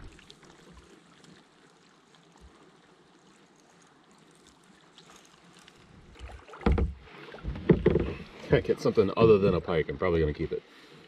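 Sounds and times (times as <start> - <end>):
faint steady hiss: 0.0 - 11.0
soft low knocks: 6.6 - 8.4.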